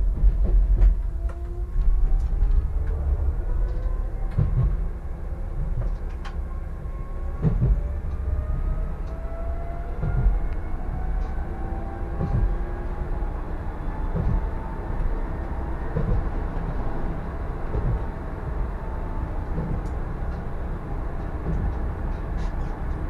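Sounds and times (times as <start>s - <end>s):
tram wheels rumbling on rail: 0.0s - 23.0s
low thump: 4.3s - 4.8s.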